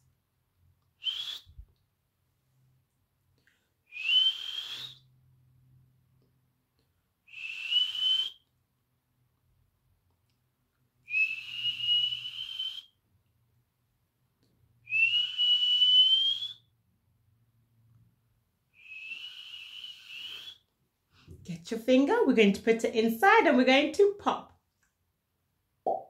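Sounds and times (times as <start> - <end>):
person whistling rising notes: 1.0 - 1.6, 4.0 - 5.1, 14.9 - 16.6.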